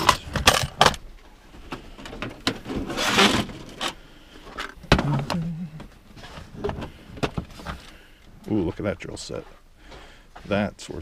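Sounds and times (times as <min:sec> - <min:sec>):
rustling scrape: 0:02.6 - 0:04.0.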